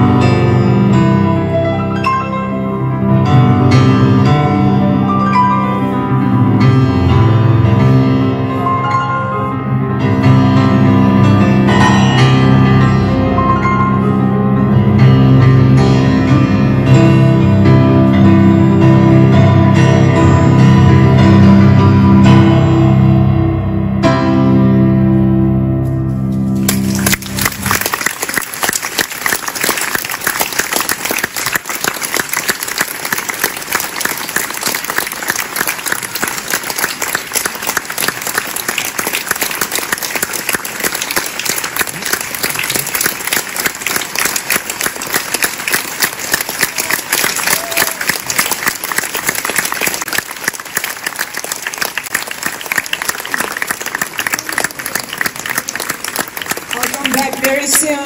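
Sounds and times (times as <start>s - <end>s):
piano chord: 0.0s - 28.0s
audience applauding: 26.6s - 58.0s.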